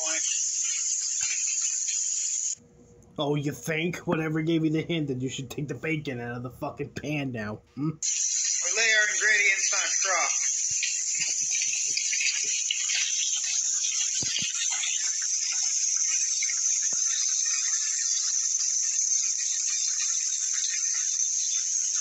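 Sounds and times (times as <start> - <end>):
bacon sizzling in a frying pan: 0.0 - 2.6, 8.0 - 22.0.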